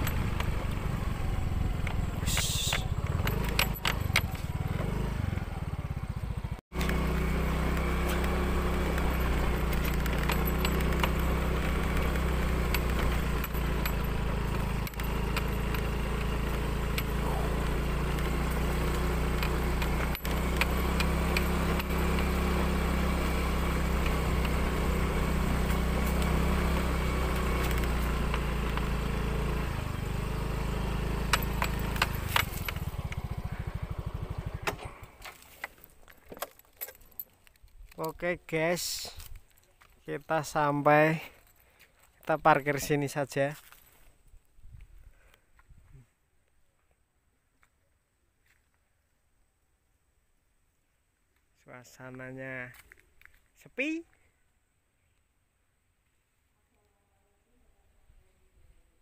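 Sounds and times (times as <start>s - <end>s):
small motorcycle engine running: 0.0s - 35.8s.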